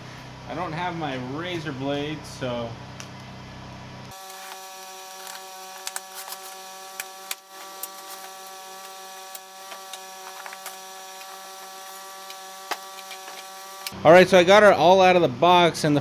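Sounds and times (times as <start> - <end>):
steady hum: 0.0 - 16.0
cardboard box being unpacked: 4.1 - 13.6
plastic wrap crackling: 4.1 - 13.6.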